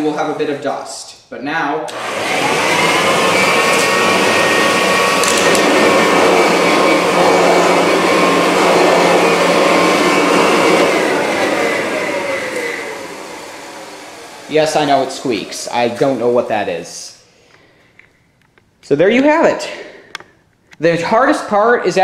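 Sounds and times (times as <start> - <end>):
vacuum cleaner motor whining: 1.9 - 16.6.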